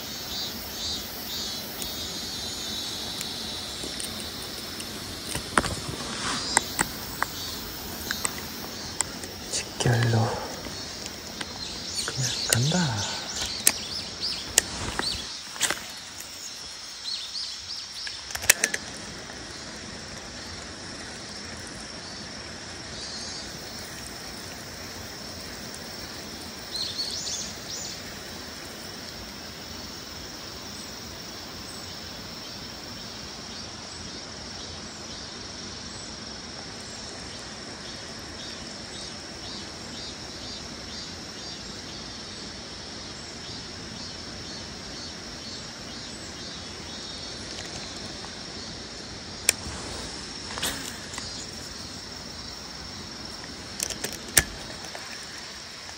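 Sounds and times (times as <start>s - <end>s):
insects droning: 0.0s - 55.9s
outdoor hiss: 0.0s - 55.9s
bird chirps: 5.6s - 15.8s
sharp click: 18.0s - 19.0s.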